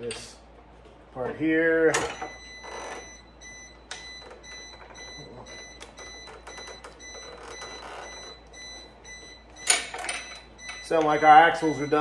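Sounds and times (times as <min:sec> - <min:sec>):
electronic timer alarm pulsing: 0:02.2 - 0:12.0.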